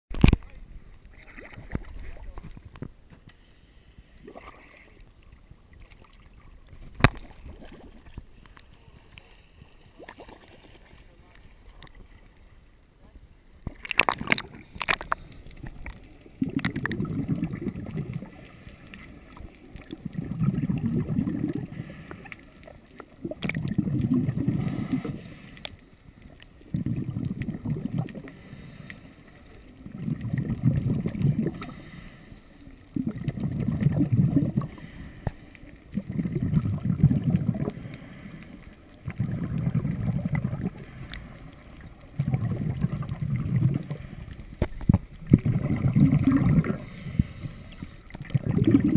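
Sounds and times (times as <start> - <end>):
underwater exhaled bubbles burbling: 0.1 - 2.9, 4.2 - 8.6, 9.2 - 12.1, 13.6 - 48.9
water splashes: 0.1 - 12.6, 13.6 - 48.9
regulator inhale hiss: 3.3 - 4.2, 18.2 - 19.4, 21.6 - 22.7, 24.5 - 26.4, 28.2 - 29.6, 31.5 - 32.9, 34.6 - 35.8, 37.6 - 38.9, 40.7 - 42.1, 43.8 - 44.8, 46.7 - 48.2.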